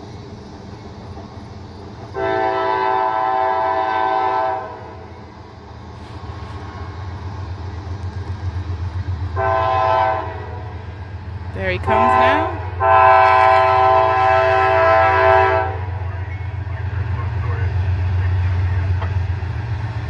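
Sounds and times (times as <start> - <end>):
train rumble: 0.0 - 20.0
locomotive air horn: 2.2 - 5.0, 9.4 - 10.8, 11.7 - 16.0.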